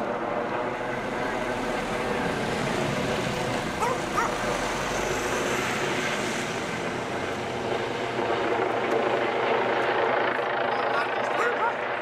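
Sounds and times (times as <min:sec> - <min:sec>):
ambulance driving past: 0:01.0 - 0:08.1.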